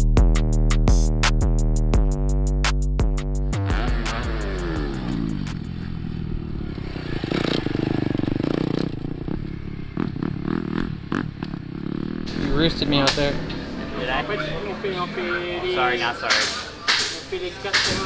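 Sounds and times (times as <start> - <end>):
drum machine beat: 0.0 - 5.6, 16.2 - 18.0
motorbike engine revving: 3.5 - 18.0.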